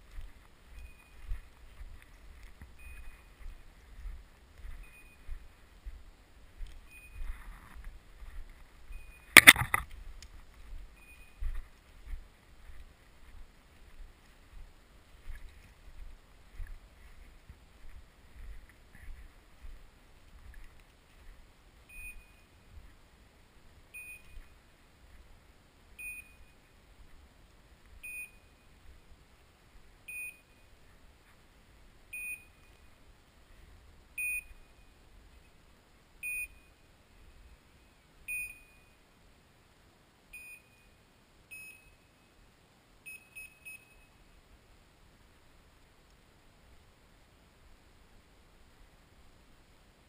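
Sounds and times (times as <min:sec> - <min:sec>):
beeper collar beeping: 0:02.8 - 0:03.5, 0:04.7 - 0:05.4, 0:06.9 - 0:07.7, 0:08.9 - 0:09.6, 0:11.0 - 0:11.6, 0:21.9 - 0:22.6, 0:23.9 - 0:24.6, 0:26.0 - 0:26.6, 0:28.0 - 0:28.8, 0:30.1 - 0:30.7, 0:32.1 - 0:32.8, 0:34.2 - 0:34.9, 0:36.2 - 0:36.8, 0:38.3 - 0:39.0, 0:40.3 - 0:42.3, 0:43.1 - 0:44.2.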